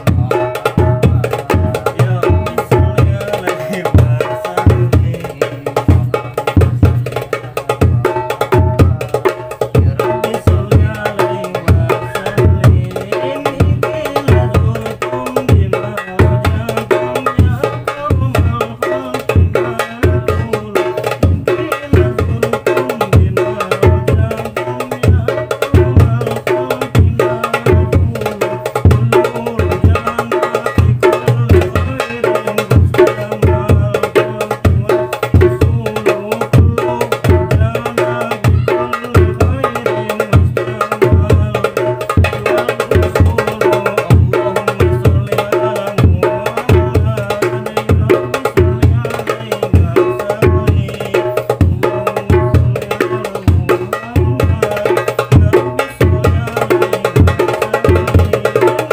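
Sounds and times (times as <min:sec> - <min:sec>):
bass drum booms: 0:00.0 - 0:58.7
darbuka strokes: 0:00.0 - 0:58.9
ringing hand-drum tones: 0:00.0 - 0:58.9.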